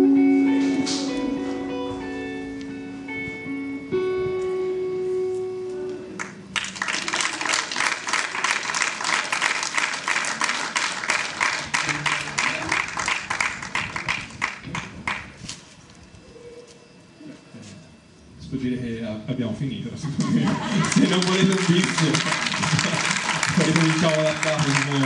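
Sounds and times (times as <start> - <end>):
guitar note ringing: 0.0 - 6.5
audience applause: 6.2 - 15.2, 20.3 - 25.0.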